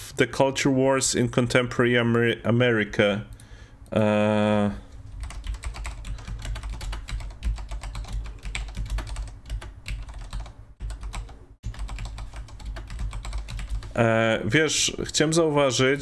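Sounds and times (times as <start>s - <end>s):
low steady hum: 0.0s - 16.0s
rapid typing on keyboard: 5.1s - 14.0s.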